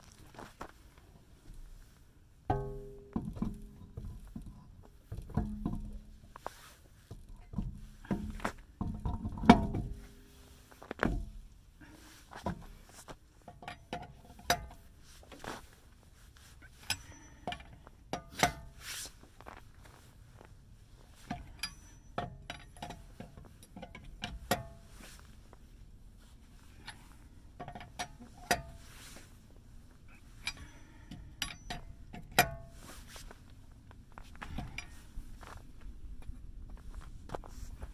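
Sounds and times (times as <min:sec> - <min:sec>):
metallic clinks of wheel nuts: 0:13.4 - 0:14.9, 0:16.7 - 0:18.8, 0:21.2 - 0:25.0, 0:26.7 - 0:29.0, 0:30.2 - 0:32.9, 0:34.4 - 0:35.0.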